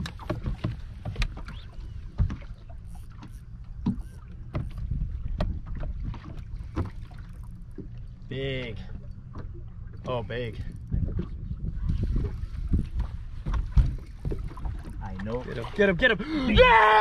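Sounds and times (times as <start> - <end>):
sharp knocks and clicks: 0.0 - 7.0
boat wind and water rumble: 0.0 - 17.0.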